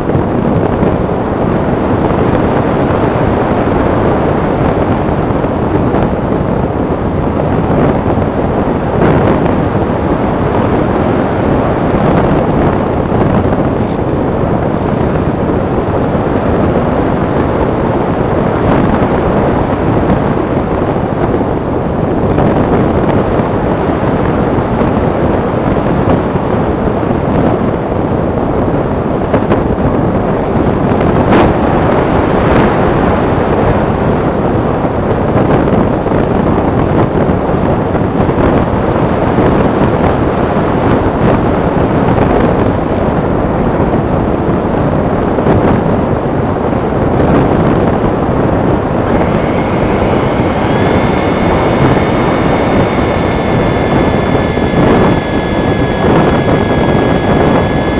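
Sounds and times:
wind rushing over microphone: 0:00.0 - 0:57.9
electric motor whine: 0:48.2 - 0:57.9.

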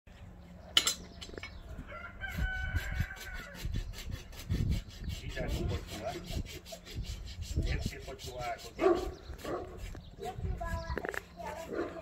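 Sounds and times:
rooster crowing: 0:01.8 - 0:03.6
rhythmic scraping strokes: 0:02.3 - 0:12.0.

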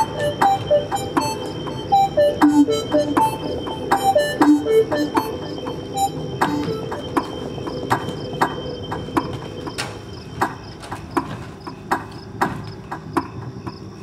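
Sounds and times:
steady low drone: 0:00.0 - 0:10.9
rhythmic sharp clicks: 0:00.0 - 0:14.0.

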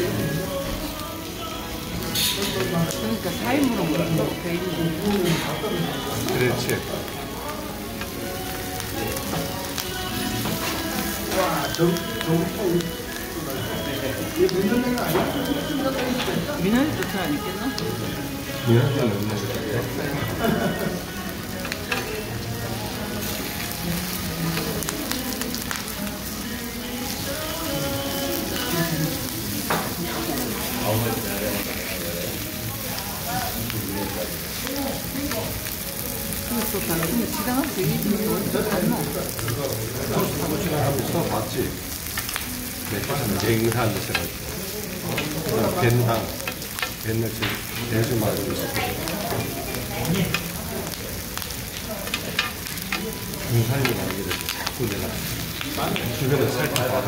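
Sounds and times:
pork sizzling on grill pan: 0:00.0 - 0:57.0
metal tongs clicking on pan: 0:48.7 - 0:50.6, 0:52.0 - 0:53.1.

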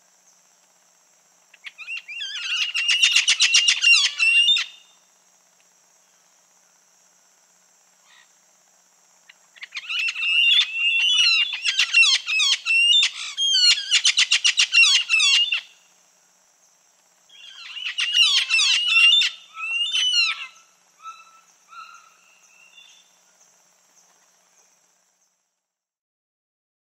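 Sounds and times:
parrot calling: 0:01.6 - 0:04.8, 0:09.6 - 0:15.7, 0:17.3 - 0:23.0.

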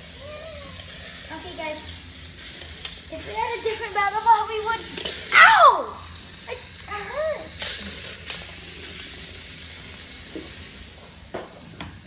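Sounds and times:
child exclamation: 0:00.2 - 0:00.8, 0:05.3 - 0:06.0, 0:06.9 - 0:07.5.

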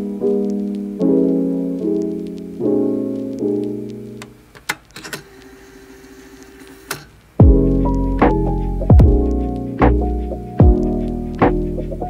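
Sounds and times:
soft piano chords: 0:00.0 - 0:04.5.

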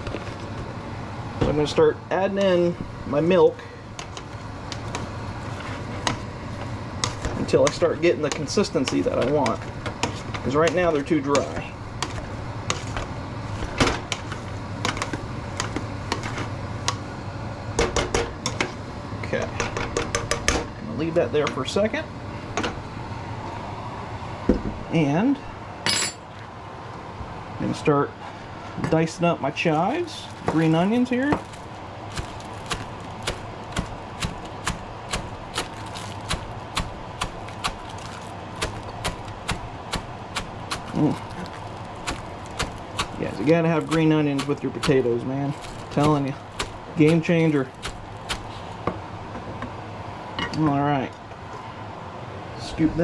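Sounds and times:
steady background hum: 0:00.0 - 0:53.0
knife chopping on plastic board: 0:32.2 - 0:45.0, 0:45.6 - 0:48.6.

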